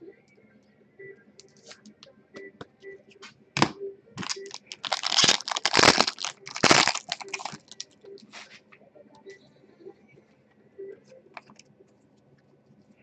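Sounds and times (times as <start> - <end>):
foil wrapper crinkling: 4.2 - 7.8.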